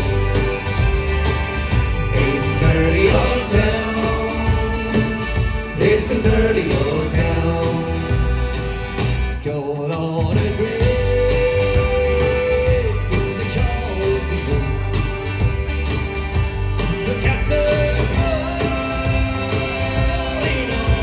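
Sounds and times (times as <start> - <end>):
button accordion: 0.0 - 9.4, 11.4 - 21.0
bass: 0.0 - 21.0
drums keeping a steady beat: 0.0 - 21.0
guitar: 0.0 - 21.0
person singing lead vocal: 2.0 - 8.8, 9.4 - 14.9, 17.0 - 21.0.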